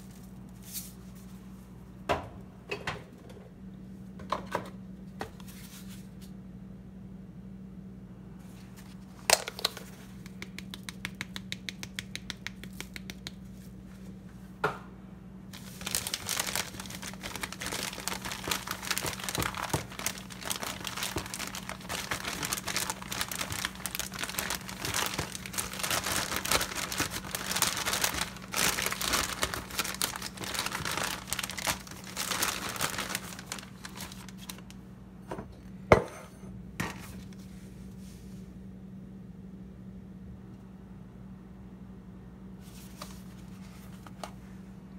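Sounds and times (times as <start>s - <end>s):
plastic bag crinkling: 15.6s - 34.8s.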